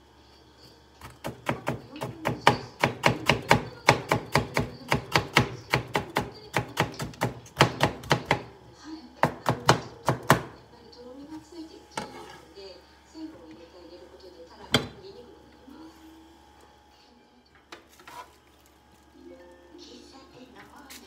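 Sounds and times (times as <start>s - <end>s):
knife chopping on cutting board: 1.0s - 8.5s, 9.2s - 10.5s.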